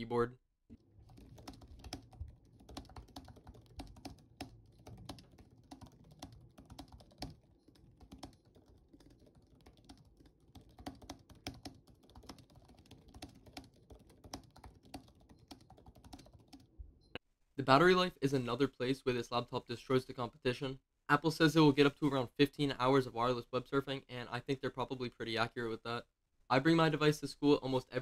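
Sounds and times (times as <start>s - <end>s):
laptop keyboard typing: 0.7s - 16.8s.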